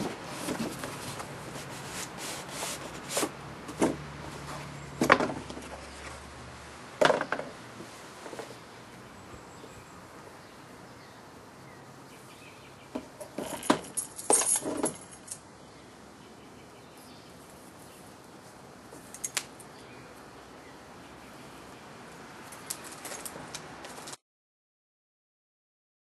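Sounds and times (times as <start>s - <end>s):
keys jangling: 13.2s - 15.4s.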